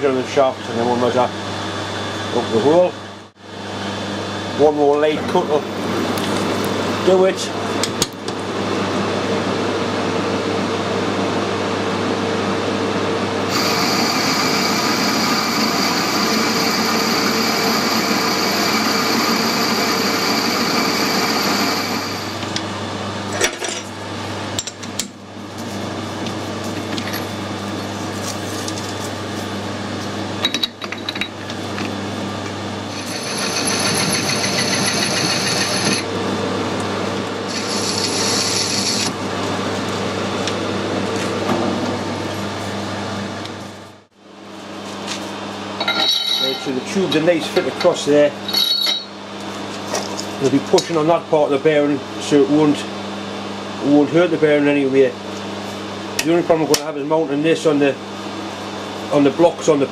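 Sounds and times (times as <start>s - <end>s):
lathe machine hum: 3.5s - 23.1s, 31.4s - 43.3s
high ringing whine: 13.5s - 22.5s, 32.9s - 36.1s, 37.5s - 39.1s, 45.8s - 49.3s.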